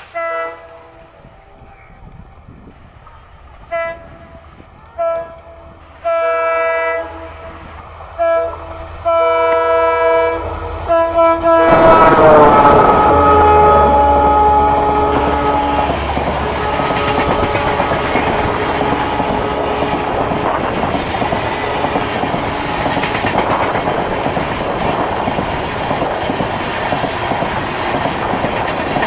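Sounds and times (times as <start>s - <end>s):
locomotive horn blasts: 0.0s - 1.1s, 3.7s - 20.8s, 21.4s - 22.9s
train rushing past: 0.0s - 29.0s.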